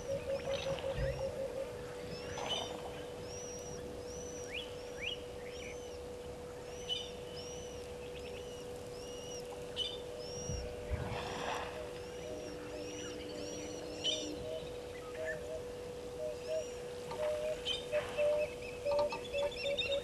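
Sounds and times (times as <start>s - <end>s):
steady low hum: 0.0s - 20.0s
bird whistling high note: 11.7s - 15.6s.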